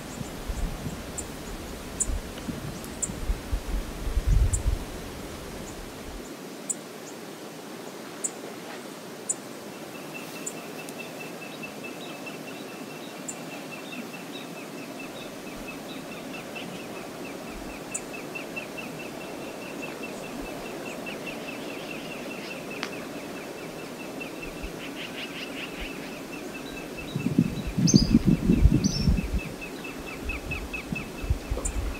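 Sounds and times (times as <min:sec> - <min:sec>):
wind and water rushing: 0:00.0 - 0:31.9.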